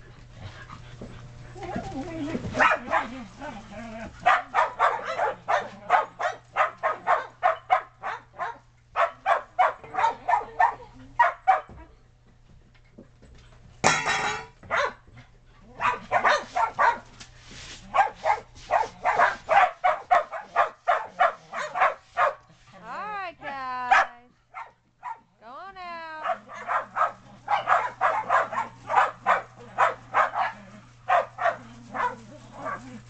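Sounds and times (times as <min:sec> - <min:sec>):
dogs barking: 0:01.6 - 0:03.4, 0:04.0 - 0:11.8, 0:13.8 - 0:15.1, 0:15.7 - 0:17.1, 0:17.9 - 0:22.5, 0:23.9 - 0:25.4, 0:26.2 - 0:33.0.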